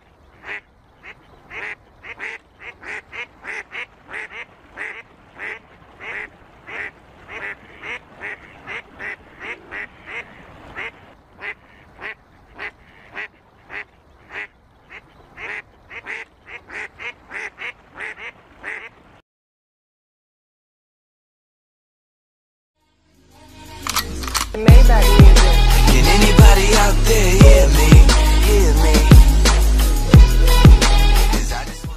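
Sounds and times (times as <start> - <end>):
ducks quacking: 0.2 - 19.1.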